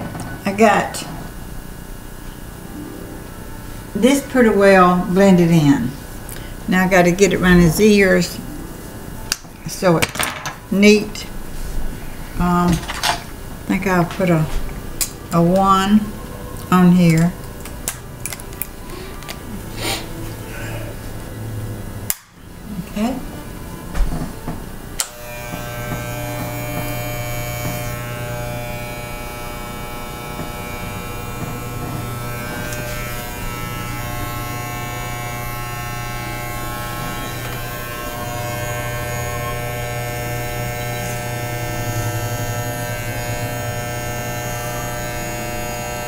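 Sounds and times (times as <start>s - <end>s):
electric hair clippers buzzing: 24.0s - 46.0s.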